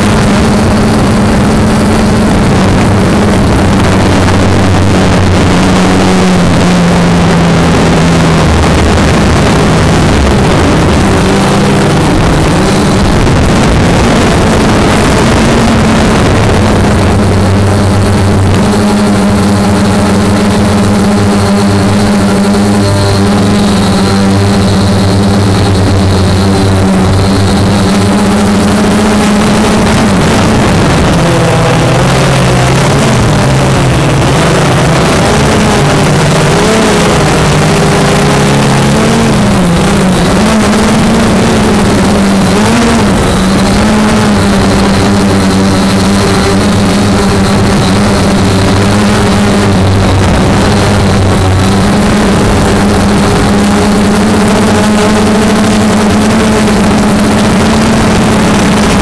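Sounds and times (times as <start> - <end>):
aircraft engine drone: 0.0 - 59.0
rushing air noise: 0.0 - 59.0.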